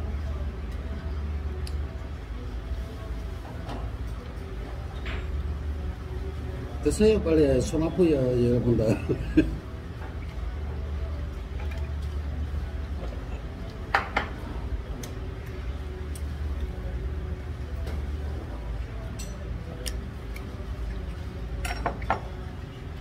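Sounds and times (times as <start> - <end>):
steady low hum: 0.0 - 23.0
cup clinking set down: 21.6 - 22.3.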